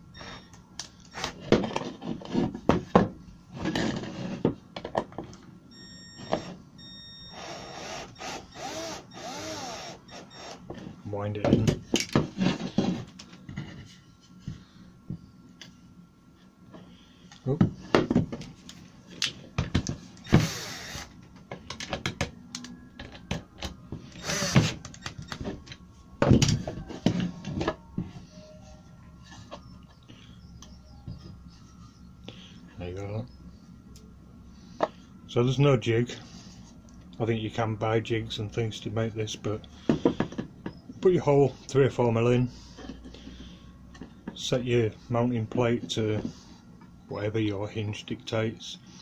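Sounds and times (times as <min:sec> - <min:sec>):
cordless drill motor running: 0:07.3 - 0:10.6, 0:20.2 - 0:21.2, 0:24.1 - 0:25.4.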